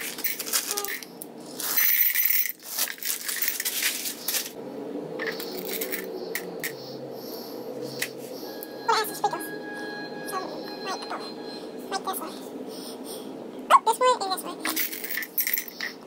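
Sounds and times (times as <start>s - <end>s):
candies clinking into glass: 0.0s - 4.5s.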